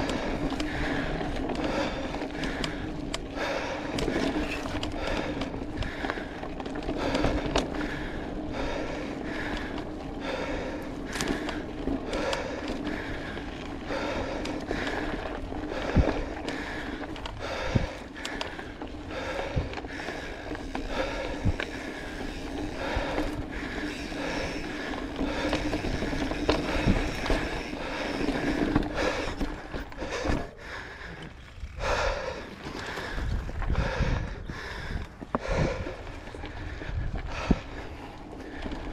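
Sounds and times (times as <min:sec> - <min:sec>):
bike tyres rattling over dirt: 0:00.0 - 0:38.9.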